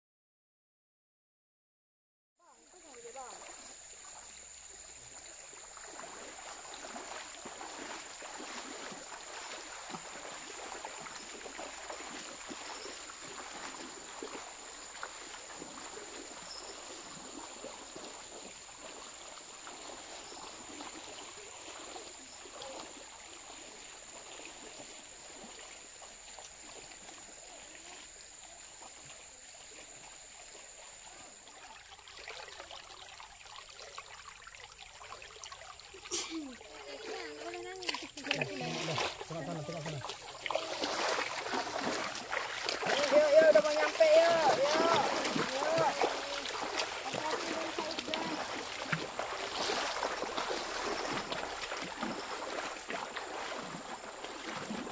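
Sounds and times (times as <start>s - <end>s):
river water rushing: 2.7s - 54.9s.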